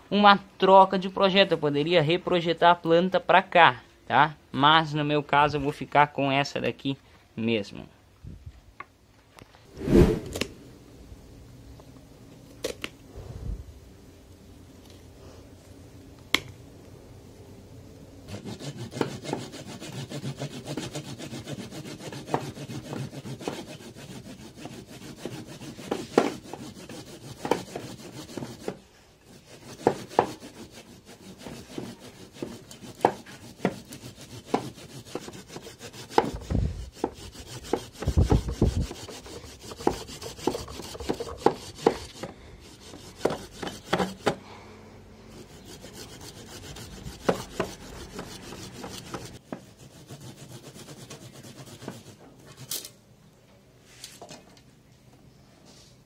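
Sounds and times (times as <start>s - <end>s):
hand saw rasping through wood: 18.3s - 44.4s, 45.3s - 52.7s.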